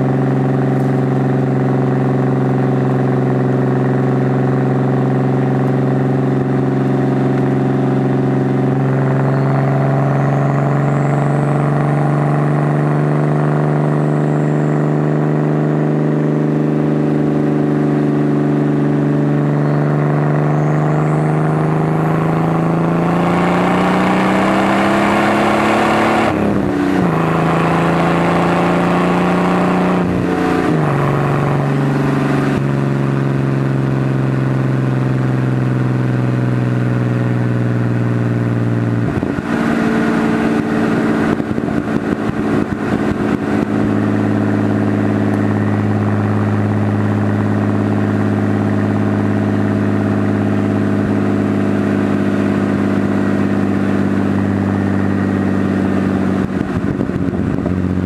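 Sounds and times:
car engine and exhaust running: 0.0 - 58.0.

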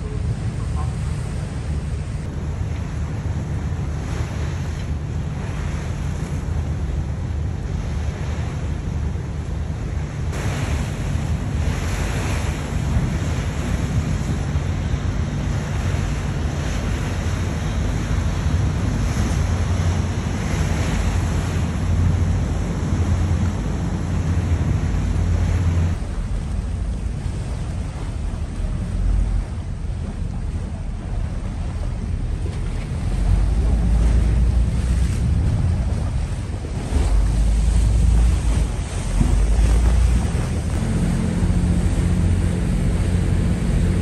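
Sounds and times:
ferry engine rumble: 0.0 - 44.0
water rushing past hull: 0.0 - 44.0
wind buffeting microphone: 0.0 - 44.0.

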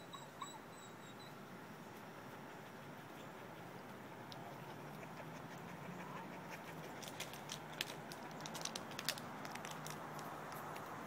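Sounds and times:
dog panting: 2.3 - 7.6
dog claws scrabbling on wood chips: 6.8 - 11.0.

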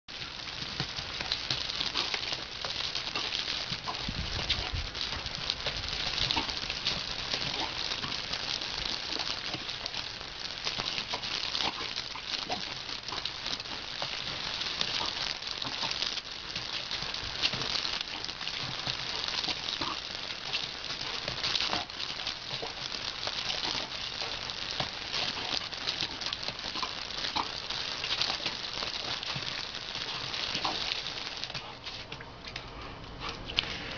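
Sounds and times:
hose water spraying on stone: 0.1 - 31.9
dog lapping at water: 1.6 - 10.0.

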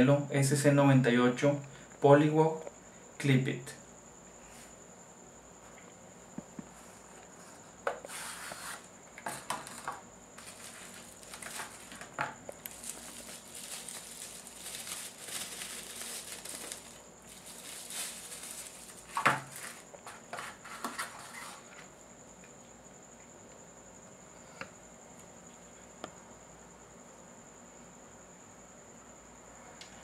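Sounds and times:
bubble wrap crinkling: 10.4 - 20.3.

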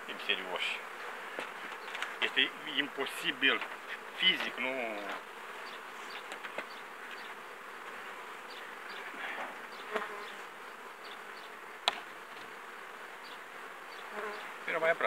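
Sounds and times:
honeybees buzzing: 0.0 - 15.0
wooden hive cover knock: 11.8 - 12.5.

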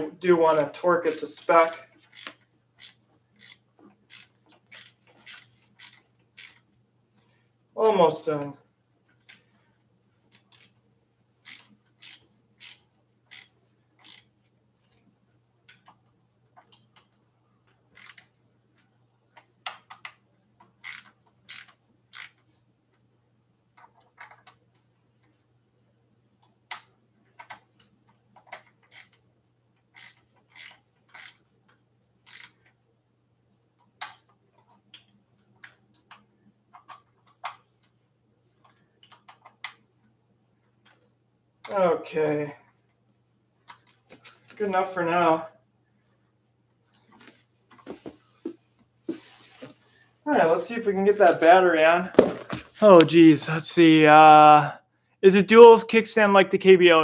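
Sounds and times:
ratchet wrench clicking: 1.6 - 6.6, 10.3 - 10.8, 11.4 - 14.3, 18.0 - 18.3, 20.8 - 22.4, 28.8 - 29.2, 30.0 - 31.4, 32.2 - 32.6.

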